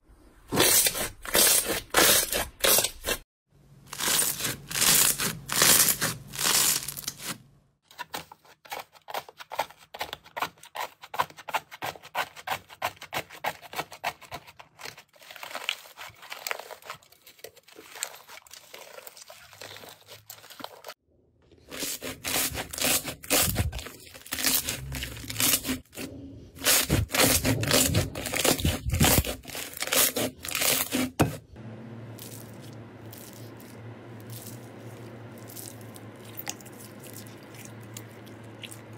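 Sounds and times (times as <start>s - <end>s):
crunchy slime stretch: 3.9s - 7.4s, 21.6s - 31.3s.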